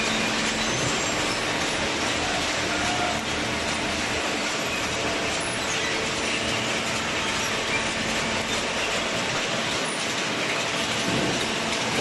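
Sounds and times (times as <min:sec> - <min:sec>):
chain conveyor clattering: 0:00.0 - 0:12.0.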